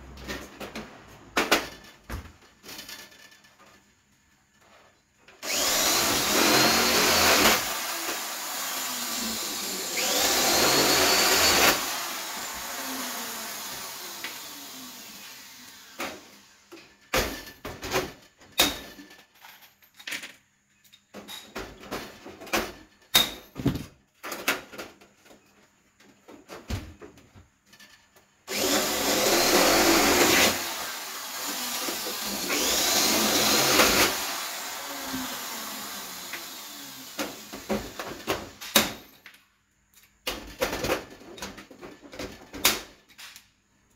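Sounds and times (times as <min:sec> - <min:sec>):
electric drill spinning: 0:05.4 - 0:16.7, 0:28.5 - 0:38.2
metal parts clicking and knocking: 0:17.3 - 0:21.6.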